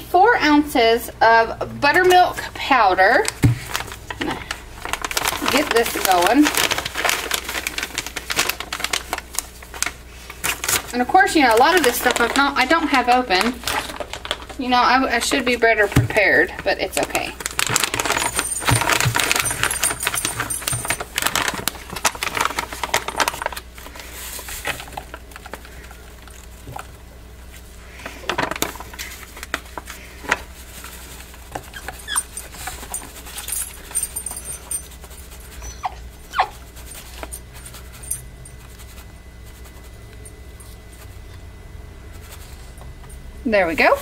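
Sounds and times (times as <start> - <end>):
plastic bag crinkling: 3.2 - 41.2
puppy whining: 31.6 - 37.4.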